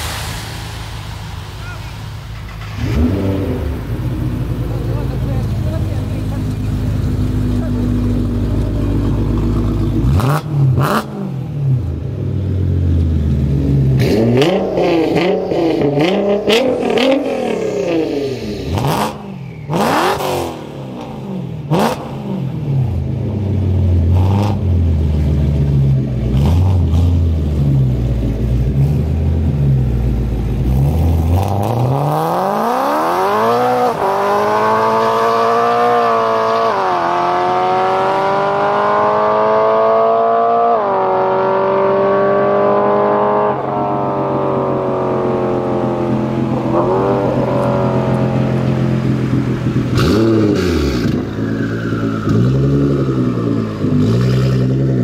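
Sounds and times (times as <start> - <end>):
exhaust cracks: 0.0 - 12.1
car accelerating hard: 0.0 - 55.0
car engines revving: 0.0 - 55.0.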